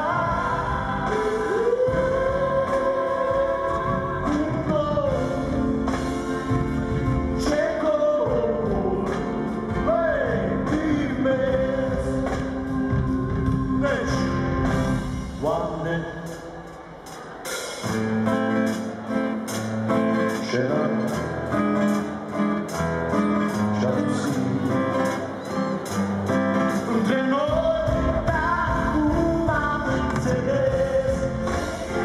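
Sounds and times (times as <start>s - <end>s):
man singing long notes: 0.0s - 5.9s
live pop band with drum beat: 0.0s - 32.0s.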